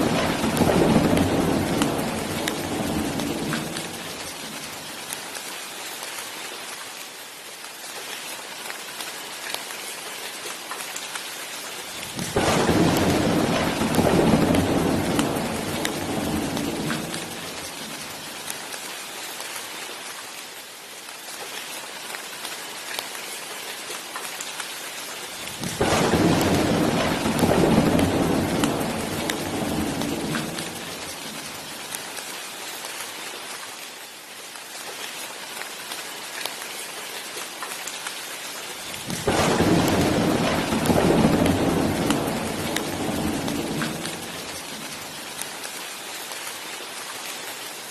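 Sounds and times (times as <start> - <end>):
thunder rumbling: 0.0 - 4.7, 12.1 - 18.3, 25.4 - 31.7, 39.0 - 45.2
steady rain: 0.0 - 47.9.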